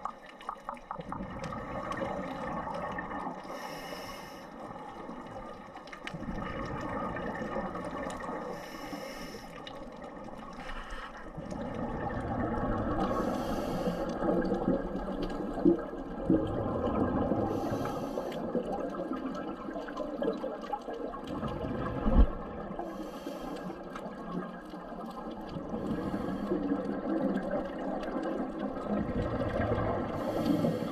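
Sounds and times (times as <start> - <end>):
exhale bubbling underwater: 0.0 - 9.0, 11.2 - 30.9
regulator inhale hiss: 3.5 - 4.6, 8.5 - 9.6, 10.6 - 11.2, 13.1 - 14.2, 17.5 - 18.5, 22.9 - 23.8, 25.9 - 26.6, 30.2 - 30.9.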